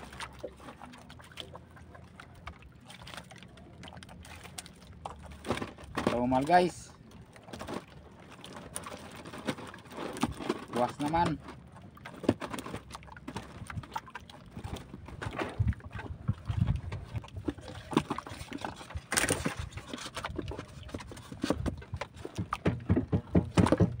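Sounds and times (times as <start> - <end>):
fishing net rustling and knocking: 4.3 - 6.7, 7.5 - 24.0.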